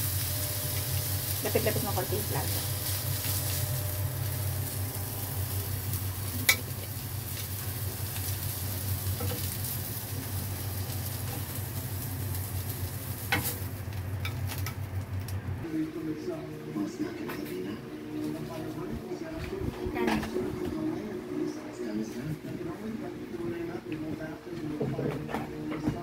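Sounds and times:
prawns sizzling on grill pan: 0:00.0 - 0:15.3
steady low hum: 0:00.0 - 0:26.0.

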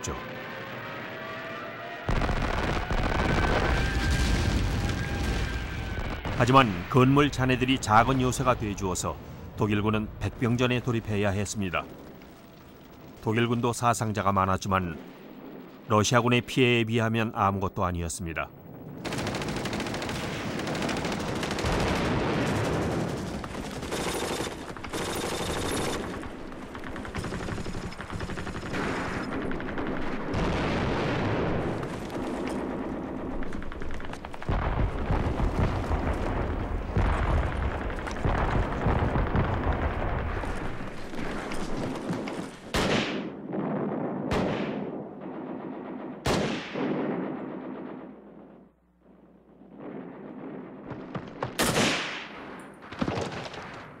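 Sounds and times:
rifle and machine-gun fire: 0:19.0 - 0:48.5, 0:49.8 - 0:54.0
single gunshots with echo: 0:51.0 - 0:53.8.

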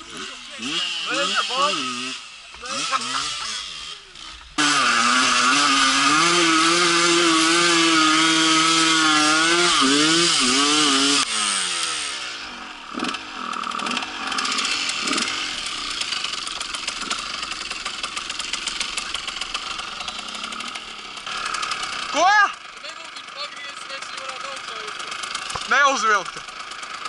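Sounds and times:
dirt bike engine revving: 0:00.0 - 0:27.0.

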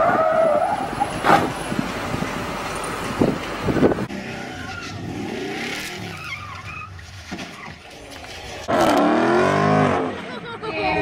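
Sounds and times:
car engines revving: 0:00.0 - 0:10.5
tyres squealing: 0:04.3 - 0:08.2.

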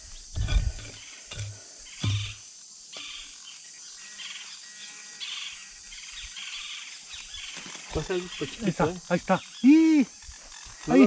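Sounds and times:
faint chirping: 0:00.0 - 0:11.0
digging tool striking hard soil: 0:00.3 - 0:02.4.

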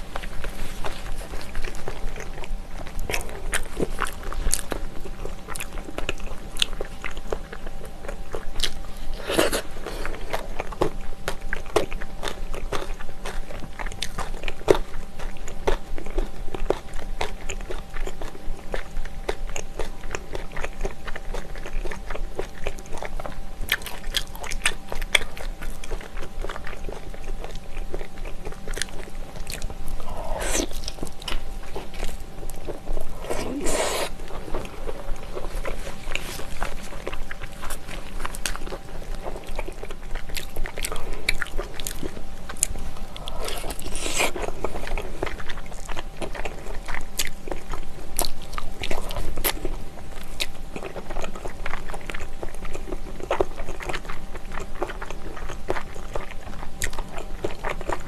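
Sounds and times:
biting and chewing: 0:00.0 - 0:58.0
mouth clicks: 0:30.0 - 0:31.0.

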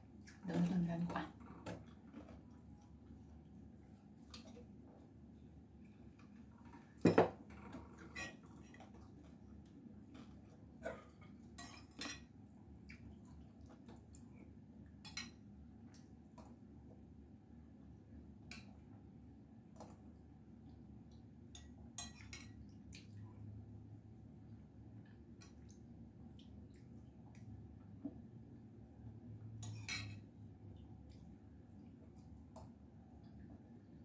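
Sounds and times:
utensils clinking against ceramic bowl: 0:29.6 - 0:30.2.

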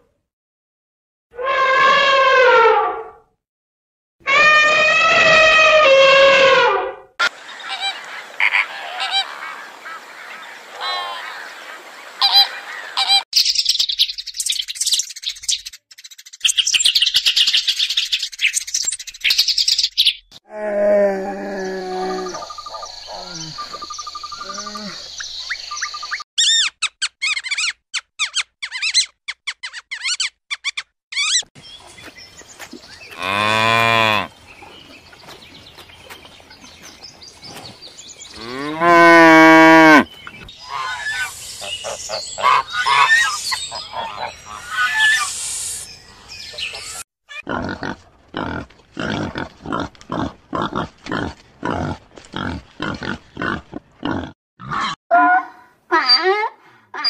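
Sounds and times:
cattle mooing: 0:33.2 - 0:34.3, 0:38.4 - 0:40.1
pigs grunting: 0:47.4 - 0:55.0.

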